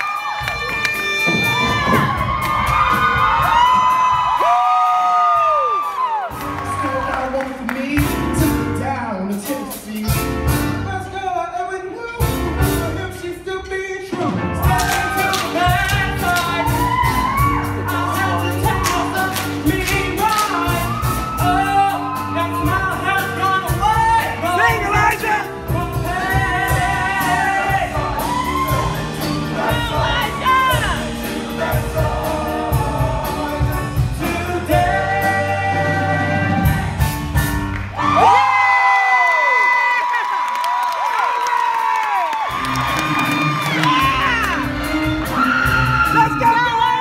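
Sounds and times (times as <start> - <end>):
drum beat: 0.0 - 7.1, 14.3 - 37.7, 42.4 - 47.0
bass line: 14.2 - 38.4, 42.5 - 47.0
choir singing: 25.8 - 37.0.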